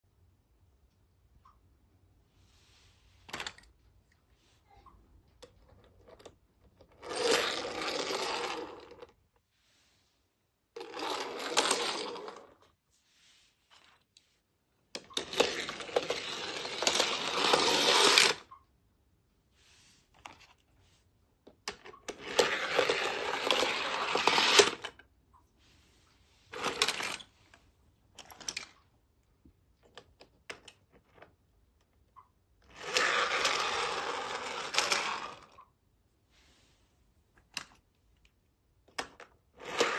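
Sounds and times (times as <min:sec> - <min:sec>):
toy cars rattling down plastic ramp: 0:05.8 - 0:09.2, 0:10.8 - 0:12.6, 0:15.0 - 0:18.5, 0:21.7 - 0:25.0, 0:26.5 - 0:27.3, 0:32.7 - 0:35.6, 0:39.0 - 0:39.9.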